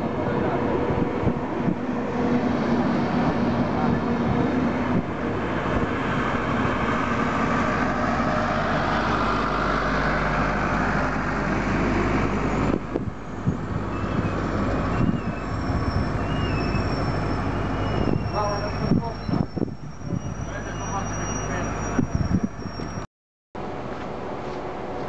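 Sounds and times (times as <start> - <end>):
high wavering squeals: 13.9 - 23.0.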